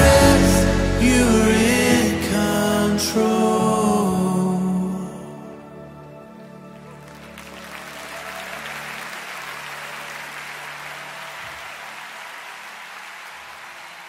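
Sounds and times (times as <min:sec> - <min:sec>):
band holding low chord: 0:00.0 - 0:07.5
audience applauding: 0:06.9 - 0:14.0.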